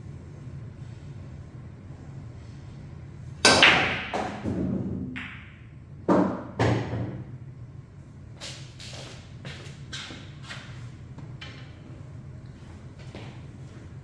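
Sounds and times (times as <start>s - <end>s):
balls clacking together: 3.4s - 7.2s
cue striking ball: 3.4s - 7.2s.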